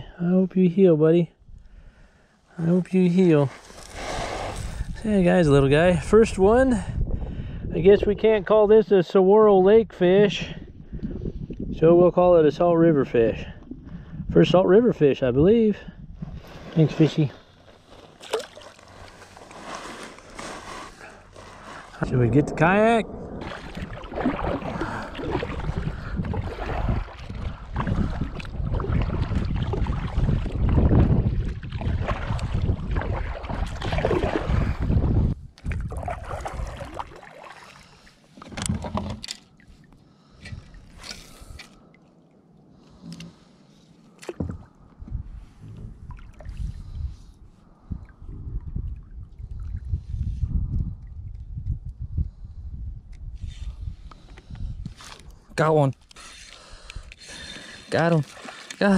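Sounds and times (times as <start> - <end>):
wind buffeting microphone: 3.1 - 8.8, 9.6 - 17.3, 20.8 - 37.2, 44.4 - 55.5
paddle splashing in water: 17.7 - 22.0, 23.4 - 34.9, 35.6 - 39.1, 57.2 - 58.9.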